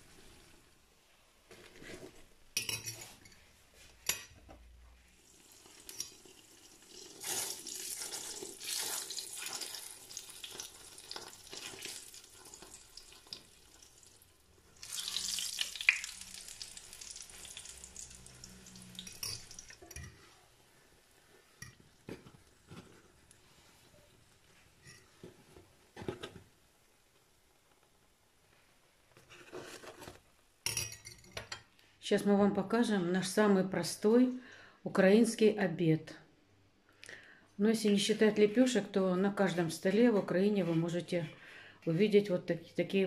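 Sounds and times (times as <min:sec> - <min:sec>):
dough sizzling in hot oil: 0:05.0 - 0:25.1.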